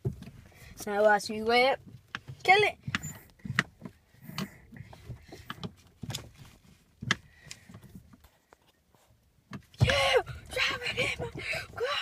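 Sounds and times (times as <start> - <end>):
sharp knocks and clicks: 1.8 - 6.4.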